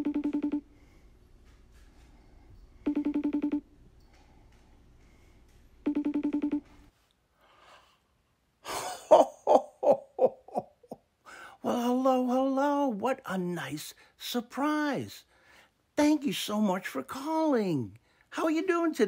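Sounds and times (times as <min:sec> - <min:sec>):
warbling phone ringing tone: 0:00.0 - 0:00.7, 0:02.9 - 0:03.6, 0:05.9 - 0:06.7
man laughing: 0:08.6 - 0:11.1.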